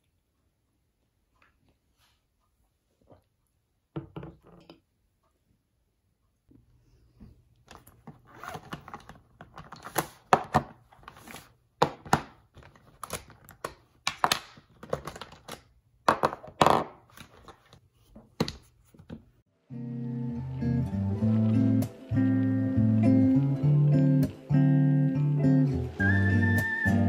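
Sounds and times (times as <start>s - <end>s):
plastic items clicking and knocking: 7.6s - 17.8s.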